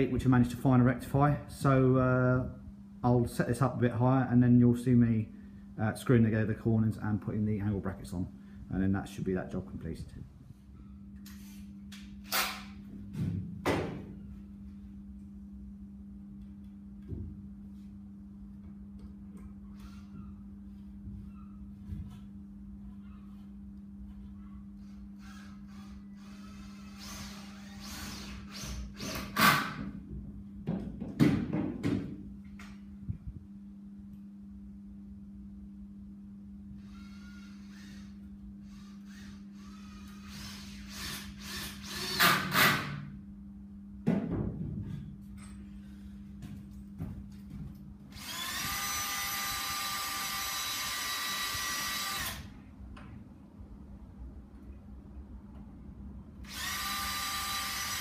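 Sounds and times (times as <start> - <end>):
steady low hum: 0.0 - 58.0
cordless drill whining: 24.9 - 29.4, 36.8 - 42.2, 48.1 - 52.5, 56.4 - 58.0
wooden knocks and thuds: 29.8 - 32.2, 44.0 - 45.1.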